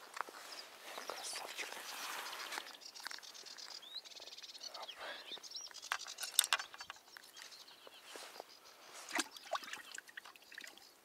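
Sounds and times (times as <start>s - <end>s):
hands handling fish clicks: 5.7s - 7.0s.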